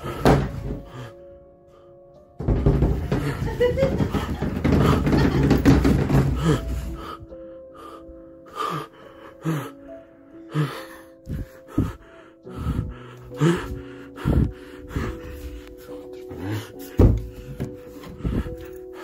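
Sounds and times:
person gasping for breath: 6.0 - 19.0.

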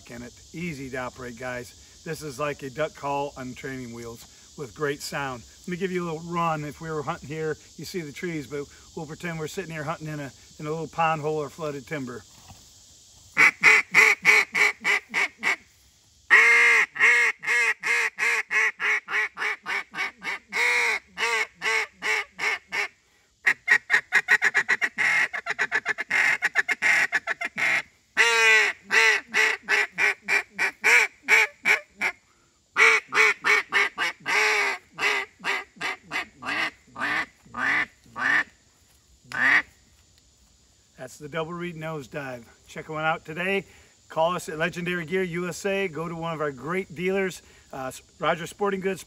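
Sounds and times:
duck call quacks: 13.4 - 15.6, 16.3 - 32.2, 32.8 - 38.5, 39.3 - 39.6.

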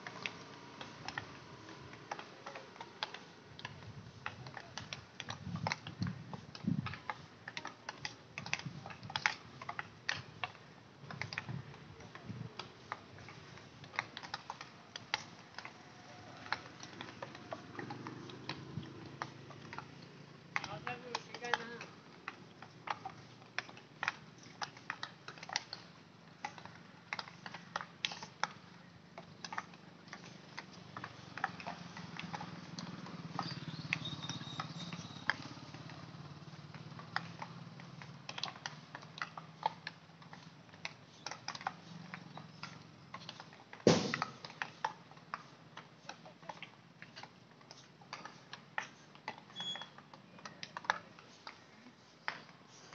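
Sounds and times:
hockey sticks clacking balls: 0.0 - 52.9
loud stick knock: 43.9 - 44.2.

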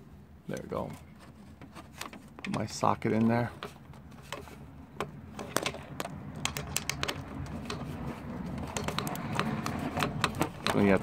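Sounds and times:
socket ratchet clicking: 5.4 - 10.9.

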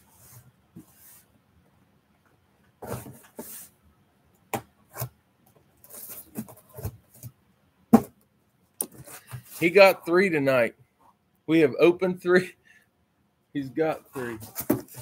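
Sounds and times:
scraping on cardboard: 5.8 - 7.3, 14.1 - 15.0.

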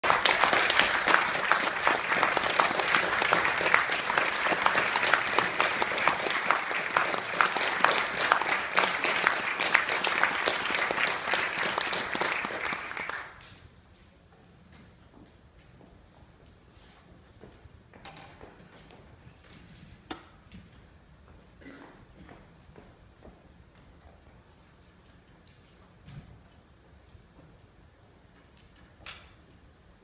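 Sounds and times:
audience applauding: 0.0 - 13.4.

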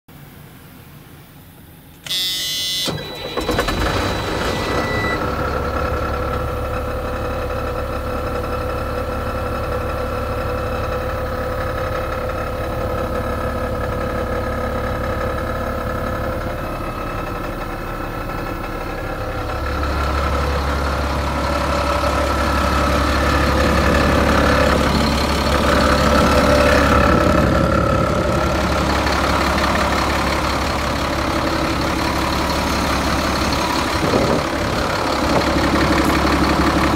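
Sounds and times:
diesel engine starting and idling: 1.3 - 36.9
thin warning tone: 1.5 - 6.1.

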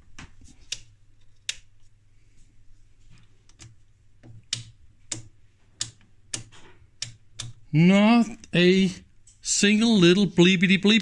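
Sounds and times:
plastic clicks and taps: 3.5 - 7.6.

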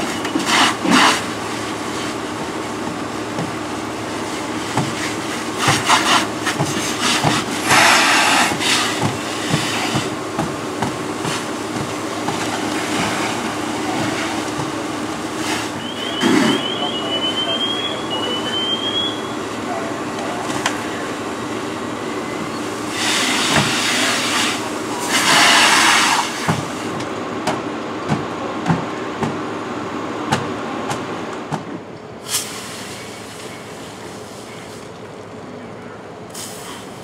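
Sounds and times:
fire hose spraying: 0.0 - 27.0, 32.2 - 35.1, 36.3 - 37.0
low engine drone: 0.0 - 37.0
high-pitched rising beeps: 15.8 - 19.4.

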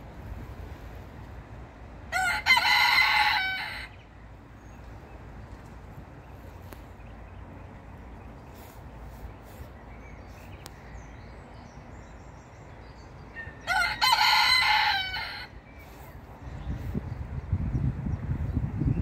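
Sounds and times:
low rumbling noise: 0.0 - 13.3
rooster crowing: 2.1 - 4.0, 13.4 - 15.6.

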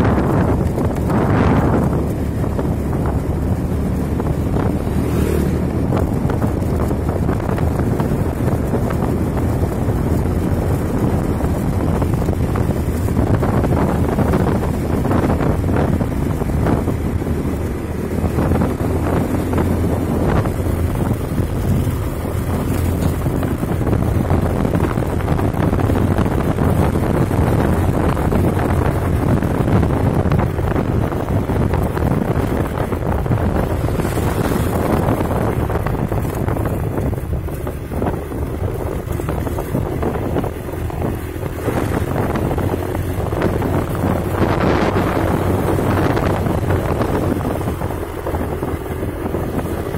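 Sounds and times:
vehicle engine drone: 0.0 - 49.9
wind buffeting microphone: 0.0 - 49.9.

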